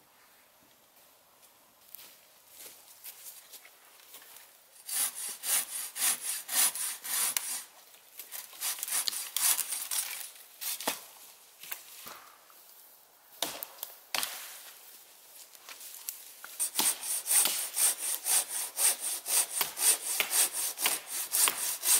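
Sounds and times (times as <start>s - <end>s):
hand saw cutting wood: 4.8s - 10.8s, 16.5s - 21.9s.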